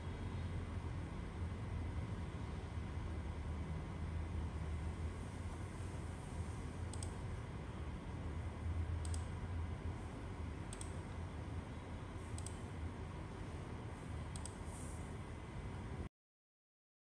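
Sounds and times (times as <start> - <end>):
steady low hum: 0.0 - 16.1
faint mouse clicks: 6.9 - 7.2, 9.0 - 9.3, 10.7 - 11.0, 12.3 - 12.6, 14.3 - 14.9.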